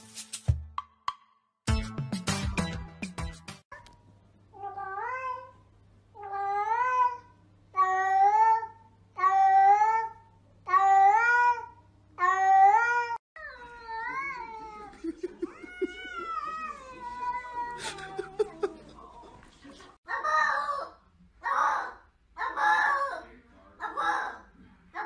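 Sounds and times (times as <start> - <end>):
cats meowing: 10.7 - 18.7.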